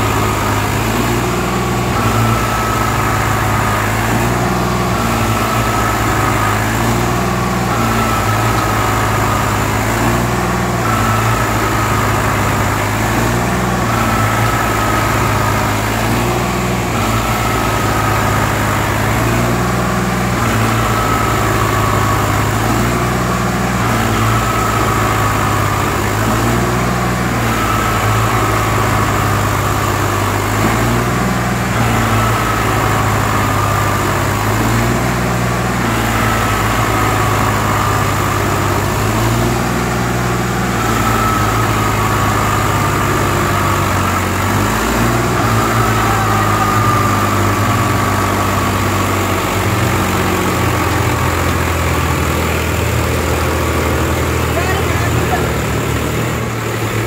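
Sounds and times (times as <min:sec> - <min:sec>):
short falling whine: 0:00.0 - 0:57.0
tractor diesel engine under load: 0:00.0 - 0:57.0.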